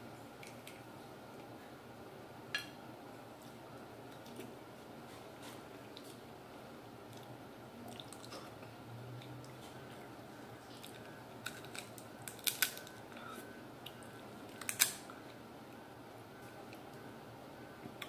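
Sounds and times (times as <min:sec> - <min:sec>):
crab shell cracking: 0:10.8 - 0:13.0, 0:14.5 - 0:15.1.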